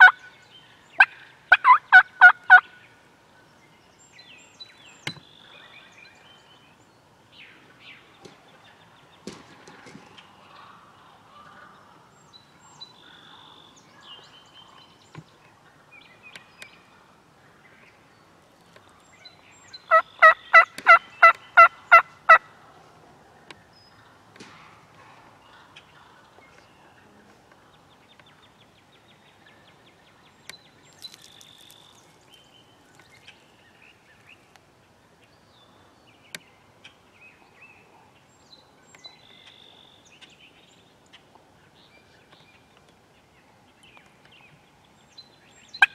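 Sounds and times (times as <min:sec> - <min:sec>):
turkey yelps: 0:01.0 - 0:02.6, 0:19.9 - 0:22.4
faint small birds chirping: 0:25.3 - 0:45.9.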